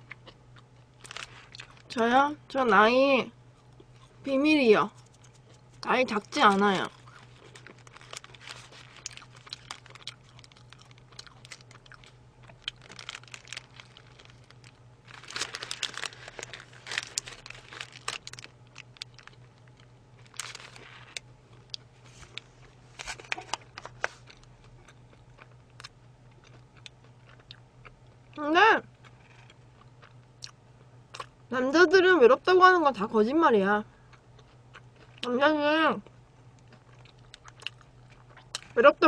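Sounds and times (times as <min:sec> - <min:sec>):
chewing and crunching food: 0:00.0 - 0:02.0, 0:03.5 - 0:04.2, 0:04.9 - 0:31.5, 0:33.9 - 0:39.0
low hum: 0:00.0 - 0:39.0
paper wrapper crinkling: 0:01.0 - 0:01.9, 0:06.8 - 0:21.2, 0:22.0 - 0:24.5.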